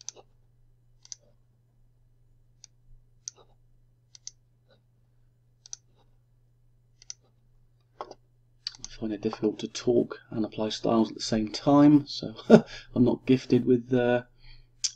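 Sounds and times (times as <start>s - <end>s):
computer mouse clicks: 0.0s - 0.3s, 1.0s - 1.4s, 2.6s - 4.4s, 5.6s - 6.1s, 7.0s - 7.3s, 7.9s - 9.0s
low steady hum: 0.0s - 14.9s.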